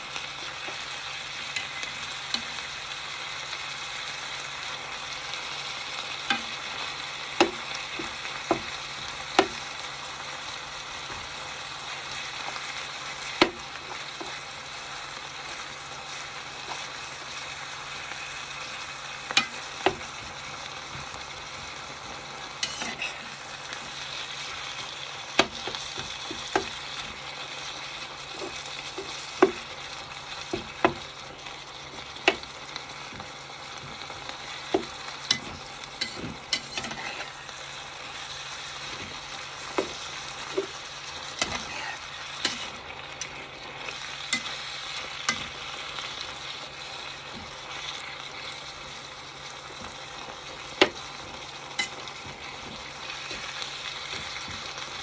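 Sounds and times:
meat and vegetables sizzling: 0.0s - 55.0s
utensils tapping pan: 6.3s - 6.6s, 7.3s - 9.7s, 19.3s - 21.1s, 22.6s - 23.3s, 25.3s - 27.2s, 28.3s - 29.8s, 30.4s - 31.2s, 31.9s - 37.4s, 38.8s - 40.8s, 41.4s - 45.8s, 50.7s - 55.0s.

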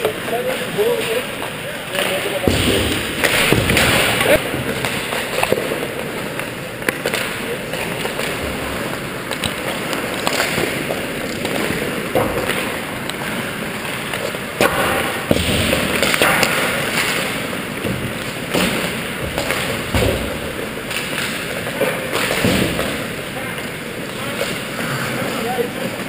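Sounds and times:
skates scraping on ice: 0.0s - 26.0s
sticks and pucks knocking: 0.1s - 24.8s.

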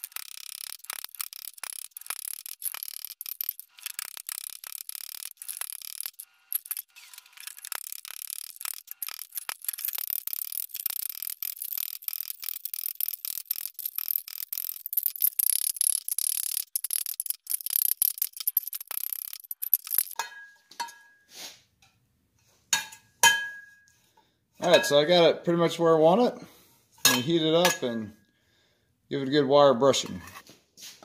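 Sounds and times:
hammer striking steel pan: 20.2s - 21.2s, 22.8s - 23.8s
ringing metal clanks: 27.0s - 28.0s.

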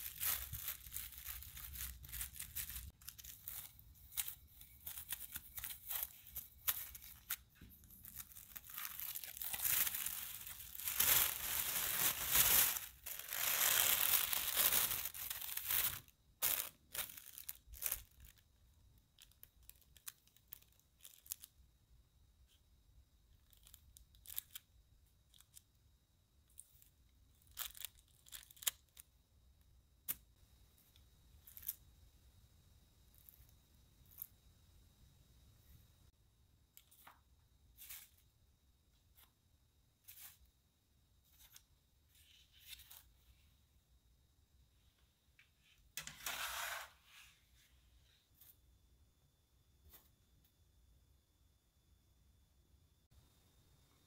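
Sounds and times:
plastic wrap crinkling: 0.0s - 18.5s, 19.1s - 21.5s, 27.4s - 29.0s.

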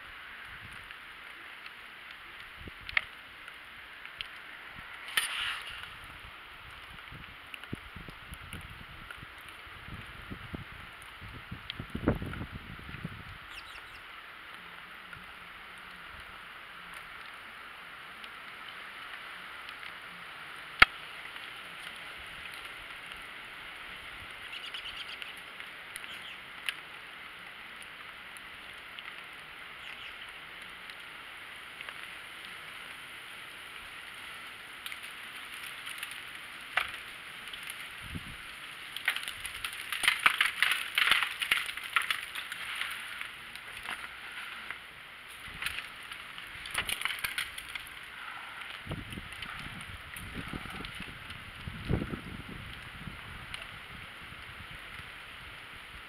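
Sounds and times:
steady outdoor hiss: 0.0s - 56.0s
footsteps crunching in snow: 5.1s - 6.0s.

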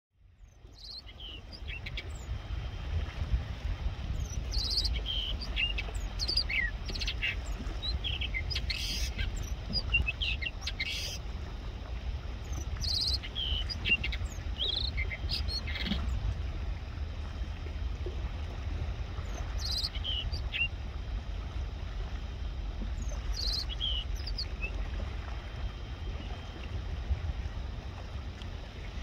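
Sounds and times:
low steady rumble: 0.2s - 29.0s
songbird singing: 0.4s - 2.4s, 4.1s - 11.2s, 12.4s - 16.2s, 19.2s - 20.8s, 22.8s - 26.7s.

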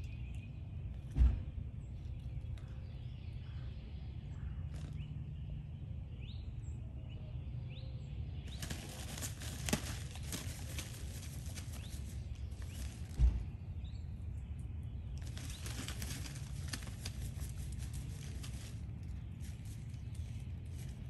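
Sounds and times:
low outdoor rumble: 0.0s - 21.0s
paws digging in pine needles: 8.4s - 13.3s, 15.2s - 21.0s.

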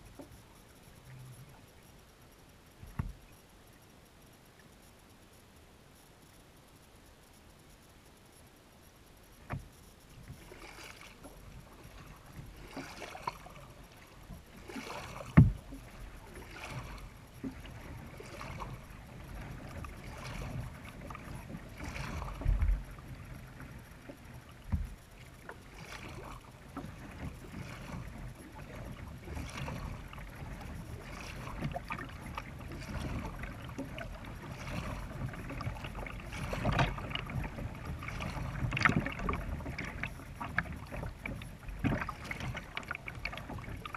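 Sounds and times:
paddle splashing water: 9.3s - 43.9s
dull thumps: 15.3s - 15.7s.

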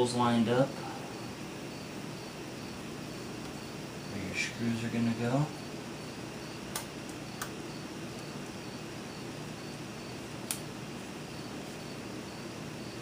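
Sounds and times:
steady hiss: 0.0s - 13.0s
small sharp clicks and taps: 6.7s - 7.6s, 10.5s - 10.7s.

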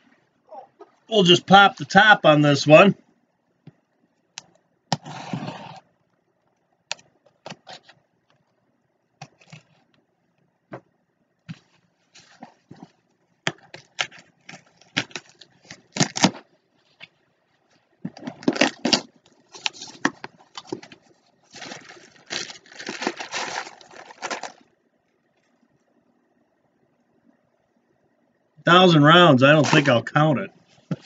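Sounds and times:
plastic bag crinkling: 18.2s - 24.7s.

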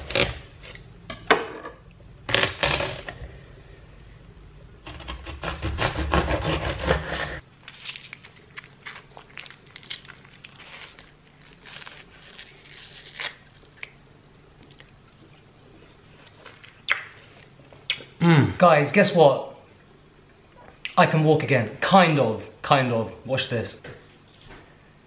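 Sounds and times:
knife crunching through watermelon rind: 4.9s - 14.0s.

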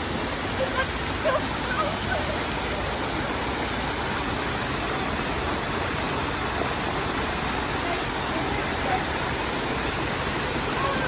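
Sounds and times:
waterfall pouring into pond: 0.0s - 11.0s.

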